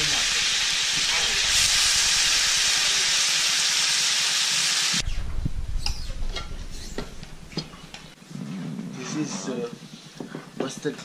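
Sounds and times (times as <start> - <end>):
meat sizzling in a wok: 0.0 - 5.1.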